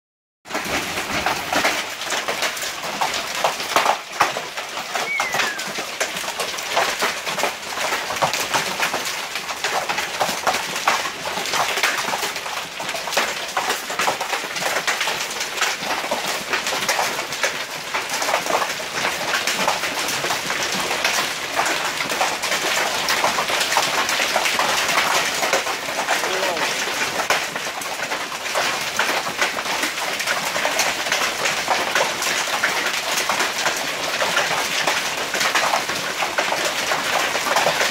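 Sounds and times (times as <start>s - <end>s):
hail falling: 0.5s - 37.9s
short falling whistle: 5.0s - 5.8s.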